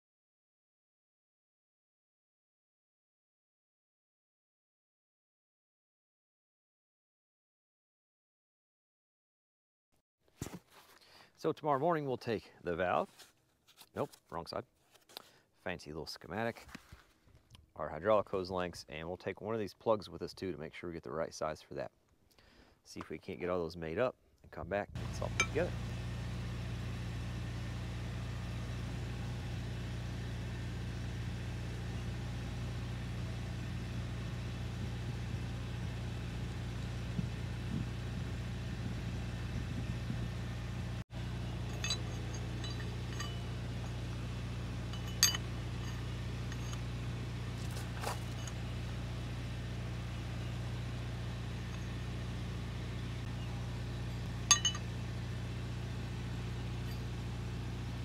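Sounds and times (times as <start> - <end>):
low mechanical hum: 24.7 - 58.0
sharp clinks: 25.2 - 25.7, 41.4 - 47.0, 47.7 - 48.7, 54.4 - 55.0.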